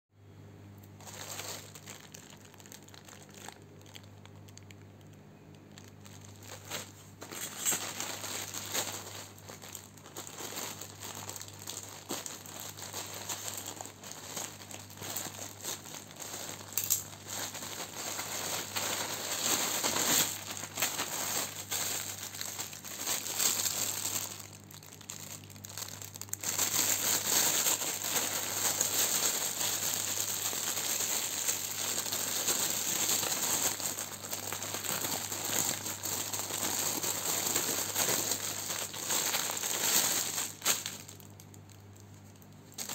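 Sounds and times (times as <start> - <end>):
plastic mailer bag crinkling: 0.9 - 42.9
plastic bag rustling: 1.0 - 42.9.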